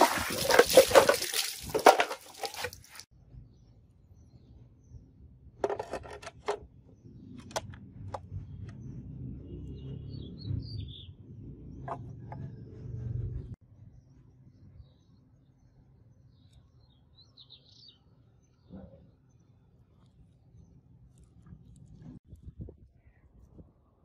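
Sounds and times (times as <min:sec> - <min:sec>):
water splashing: 0:00.0 - 0:03.1
bird chirping: 0:13.9 - 0:19.6.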